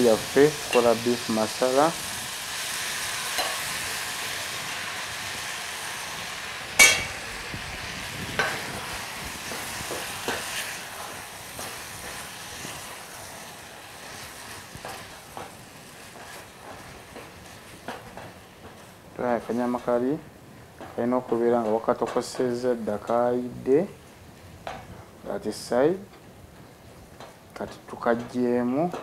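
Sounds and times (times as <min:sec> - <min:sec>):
food sizzling in a pot: 0:00.0 - 0:21.1
metal clank on pot: 0:03.4 - 0:03.6, 0:06.8 - 0:07.2.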